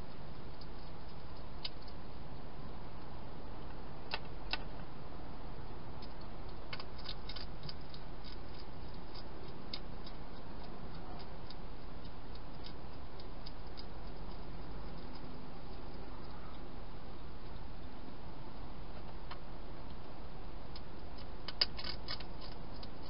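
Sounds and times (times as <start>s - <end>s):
hedgehog crunching dry food: 6.0s - 16.3s, 20.7s - 23.0s.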